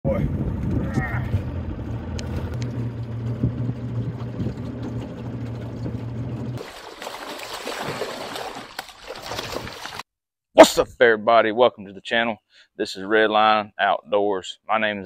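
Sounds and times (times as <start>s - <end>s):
boat motor idling: 0.3s - 6.6s
water splashing off net: 6.6s - 10.1s.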